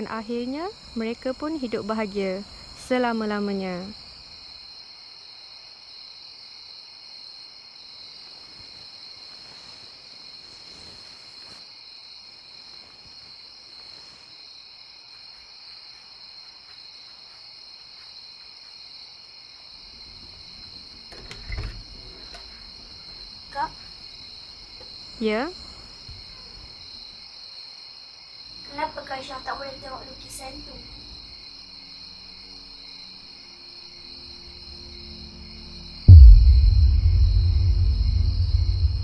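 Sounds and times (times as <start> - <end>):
insect chorus chirring: 0.0 - 39.0
door opening with low thud: 19.9 - 23.8, 36.1 - 39.0.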